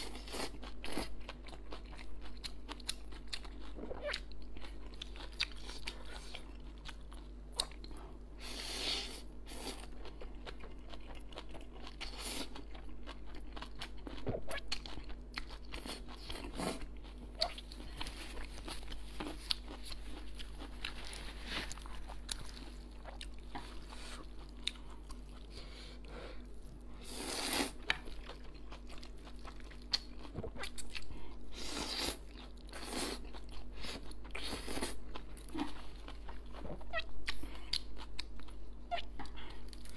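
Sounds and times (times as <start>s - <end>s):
chewing with wet mouth clicks: 1.2s - 8.0s.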